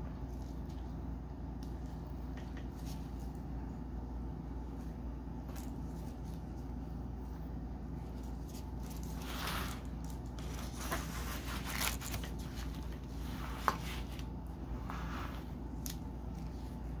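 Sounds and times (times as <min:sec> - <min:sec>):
fabric rustling: 0:08.1 - 0:17.0.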